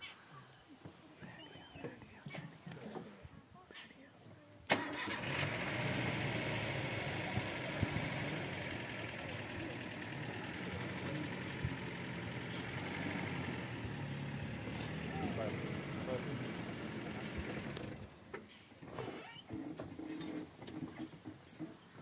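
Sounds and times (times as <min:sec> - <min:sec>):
vehicle engine idling: 0:04.7 - 0:18.3.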